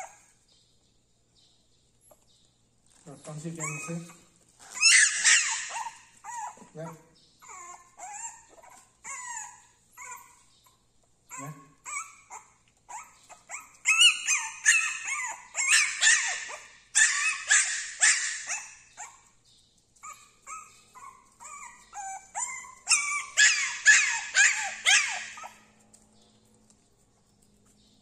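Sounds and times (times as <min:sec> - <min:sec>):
puppy yipping and barking: 0:00.0 - 0:00.4, 0:03.4 - 0:19.4, 0:20.0 - 0:26.0.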